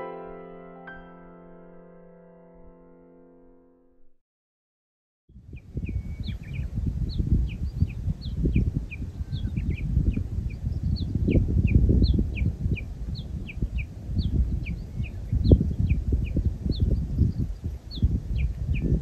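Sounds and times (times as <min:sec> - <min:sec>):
wind buffeting microphone: 0:05.3 - 0:19.0
small birds chirping: 0:05.4 - 0:19.0.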